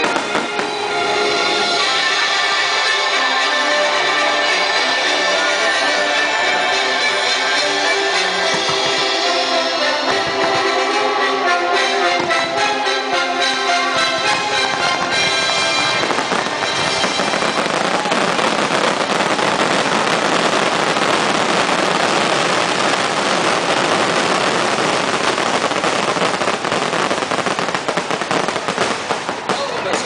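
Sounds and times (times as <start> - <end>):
firework bangs: 0.0 - 1.2, 6.5 - 11.0, 14.0 - 30.0
fireworks bursting and crackling: 0.0 - 30.0
orchestral music: 0.0 - 30.0.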